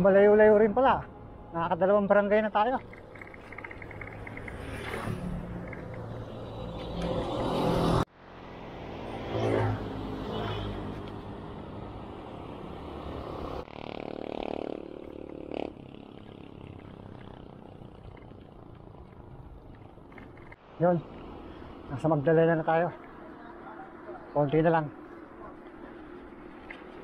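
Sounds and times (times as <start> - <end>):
wind and road noise: 0.0 - 27.0
passing vehicle engine: 2.8 - 18.6.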